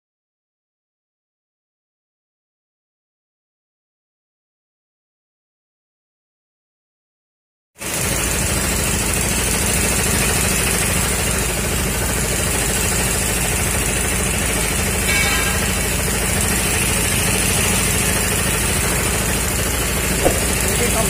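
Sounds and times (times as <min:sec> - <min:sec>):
air compressor running: 0:07.8 - 0:21.0.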